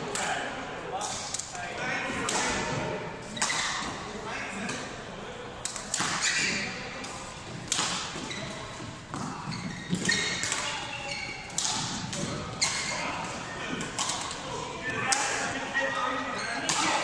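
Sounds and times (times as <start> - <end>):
rackets hitting shuttlecock: 2.2 - 4.0, 5.6 - 15.5, 16.6 - 17.0.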